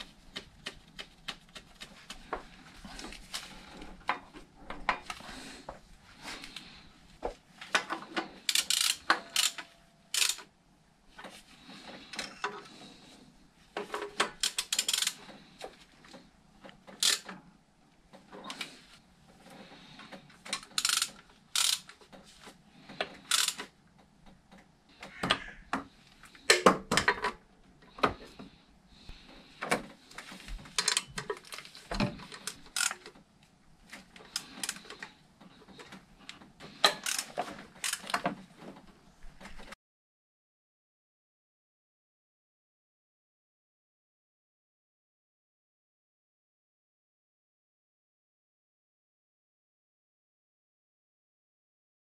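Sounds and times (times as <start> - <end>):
ratchet wrench clicking: 8.5 - 10.4, 14.4 - 15.2, 17.0 - 17.2, 20.6 - 21.9, 23.3 - 23.6, 32.7 - 32.9, 37.0 - 38.0.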